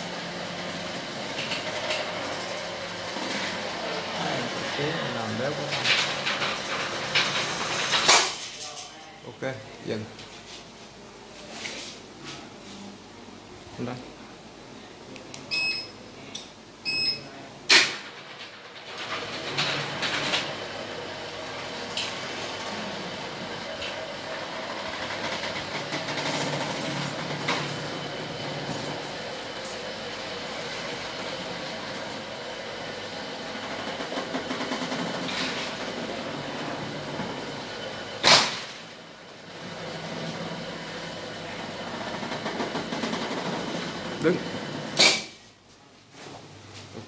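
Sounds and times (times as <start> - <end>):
roller shutter rattling: 0.2 - 8.7, 17.8 - 45.0
short electronic beep: 15.5 - 15.9
loud clunk: 38.2 - 38.8.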